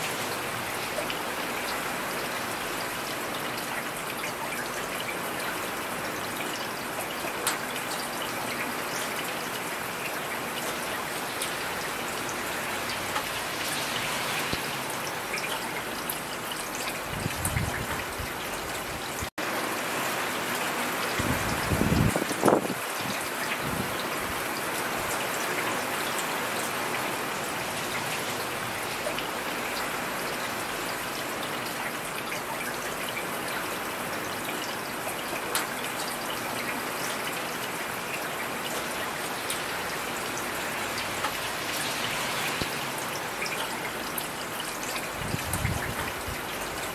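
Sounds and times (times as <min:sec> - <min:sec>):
heavy rain hiss: 0:39.2 - 0:46.8.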